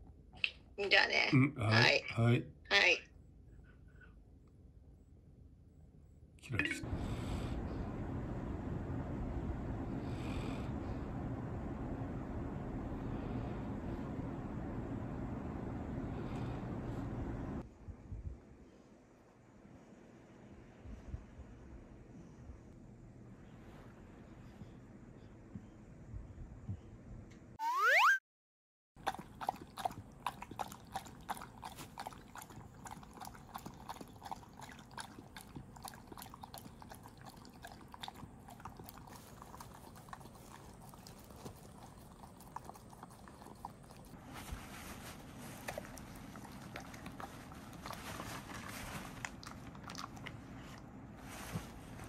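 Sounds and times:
dog lapping and chewing: 29.0s - 51.6s.

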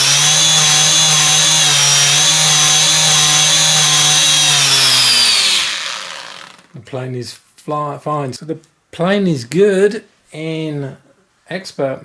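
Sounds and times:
model plane motor whine: 0.0s - 6.7s.

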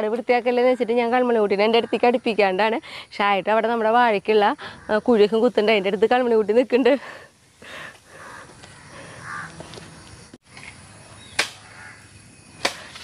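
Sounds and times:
bird cawing: 7.7s - 9.8s, 11.2s - 12.1s.

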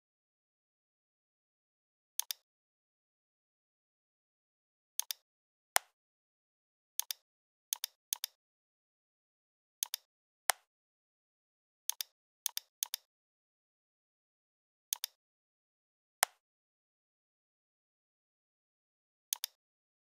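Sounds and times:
computer mouse clicking: 2.2s - 2.4s, 5.0s - 5.2s, 7.0s - 8.4s, 9.8s - 10.1s, 11.9s - 13.1s, 14.9s - 15.2s, 19.3s - 19.6s.

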